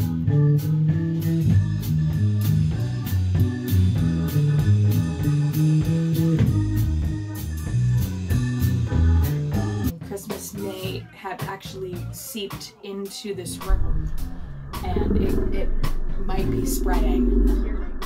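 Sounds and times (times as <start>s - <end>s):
electric bass guitar line: 0.0s - 9.9s, 13.6s - 18.0s
instrumental rock music: 0.0s - 11.0s, 13.4s - 18.0s.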